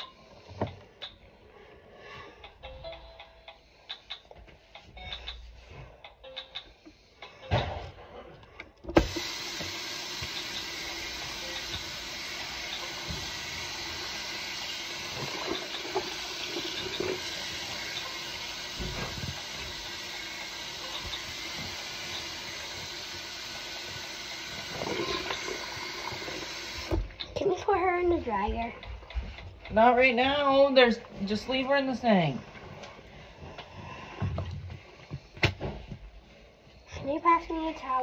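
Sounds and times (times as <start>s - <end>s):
faucet water running: 9.0s - 27.2s.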